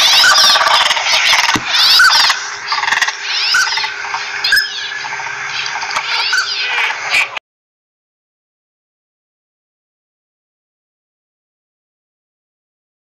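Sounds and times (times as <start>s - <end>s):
ducks whistled calls: 0.0s - 7.4s
rapid high-pitched chirping chorus: 0.0s - 7.4s.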